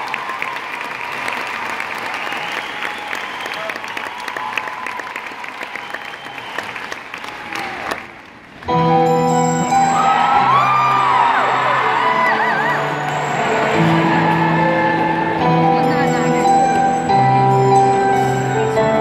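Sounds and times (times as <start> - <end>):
crowd applauding and cheering: 0.0 - 18.8
piano sustained notes: 8.7 - 19.0.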